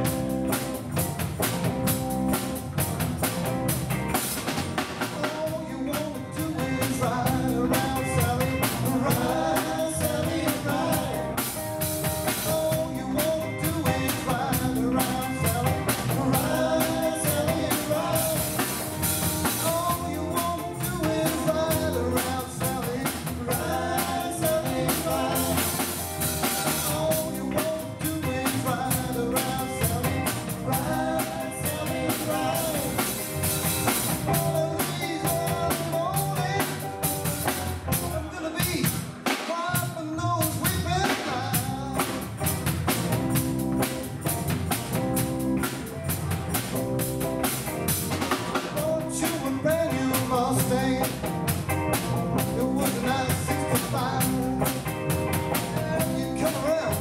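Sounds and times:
electric guitar: 0.0 - 39.3, 40.2 - 57.0
bass guitar: 0.0 - 57.0
drum kit: 0.0 - 57.0
woman singing lead vocal: 5.5 - 11.5, 12.8 - 18.8, 19.8 - 26.0, 26.9 - 33.2.

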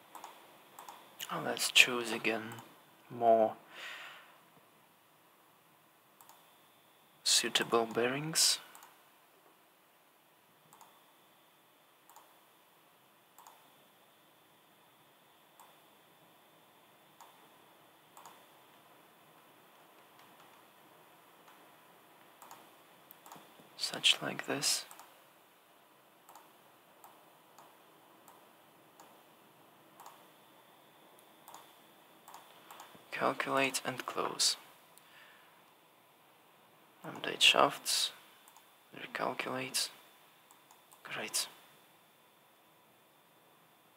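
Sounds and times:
room hiss: 0.0 - 43.9
computer mouse clicks: 0.1 - 1.3, 6.2 - 6.4, 8.7 - 9.0, 10.7 - 11.0, 12.1 - 12.4, 13.4 - 13.7, 15.6 - 15.8, 17.2 - 17.4, 18.1 - 18.4, 20.0 - 20.6, 22.4 - 23.7, 24.9 - 25.1, 26.3 - 28.4, 29.0 - 29.2, 30.0 - 30.3, 31.2 - 33.0, 38.4 - 38.7.

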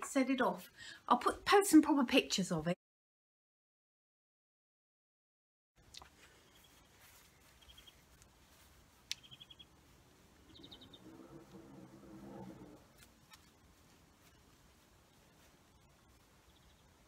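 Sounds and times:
low hum: 6.5 - 17.0
small bird trilling: 7.6 - 8.0, 9.1 - 9.7, 10.4 - 11.1.

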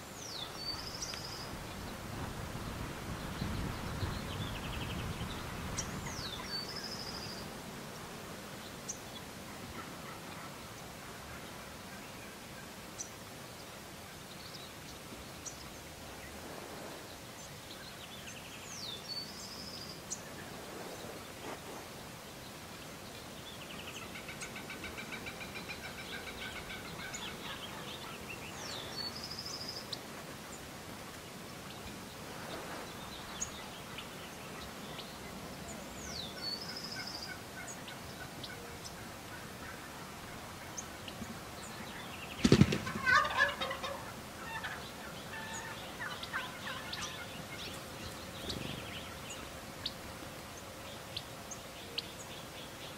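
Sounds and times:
turkeys gobbling: 24.0 - 28.2, 42.4 - 47.8.

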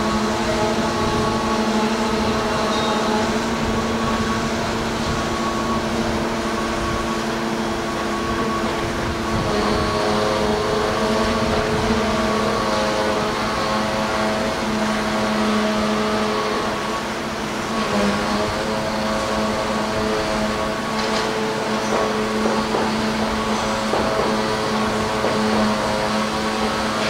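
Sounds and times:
crane diesel engine droning: 0.0 - 27.0.

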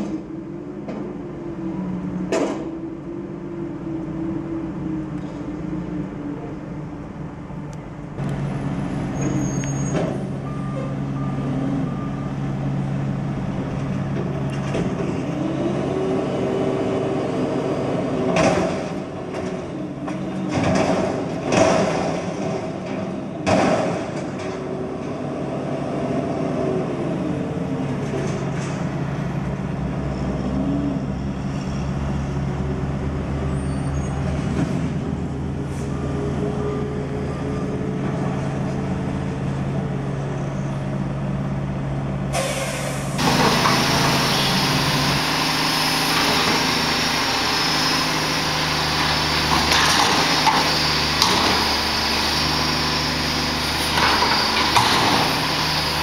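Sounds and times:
dumpster banging: 18.2 - 24.6, 43.2 - 56.0
garbage truck engine revving: 34.2 - 56.0.

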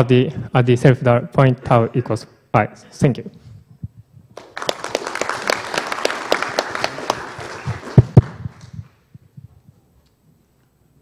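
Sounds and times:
audience applauding: 4.4 - 9.0.

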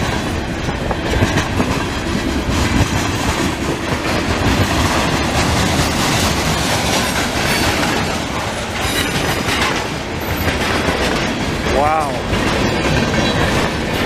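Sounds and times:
freight train wheels rumbling: 0.0 - 14.0.

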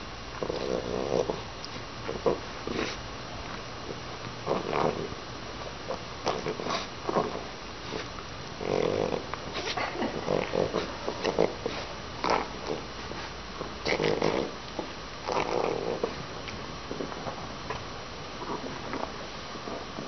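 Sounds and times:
dog grunting and snuffling: 0.4 - 3.0, 3.8 - 5.2, 5.9 - 14.6, 15.2 - 16.3.

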